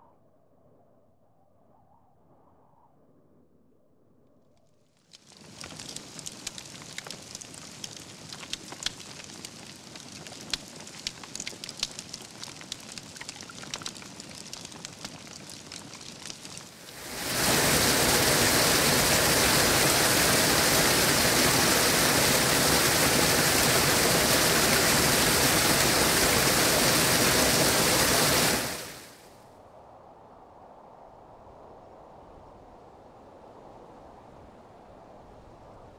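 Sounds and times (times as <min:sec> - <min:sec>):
wood fire crackling: 0:05.0 - 0:29.3
water falling and splashing: 0:05.1 - 0:29.2.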